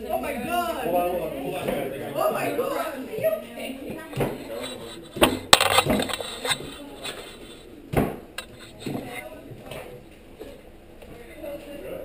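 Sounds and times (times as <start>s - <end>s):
hard objects knocking and clinking: 4.2s - 6.8s.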